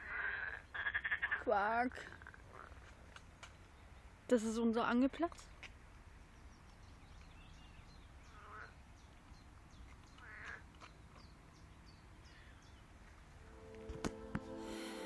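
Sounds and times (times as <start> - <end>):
frogs croaking: 0.0 - 1.5, 8.2 - 8.8, 10.1 - 10.8.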